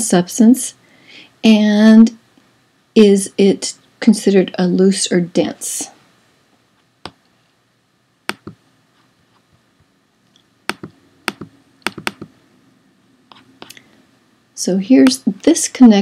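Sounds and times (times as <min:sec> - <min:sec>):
mouse and key clicks: 0:08.3 - 0:08.6, 0:10.4 - 0:12.3.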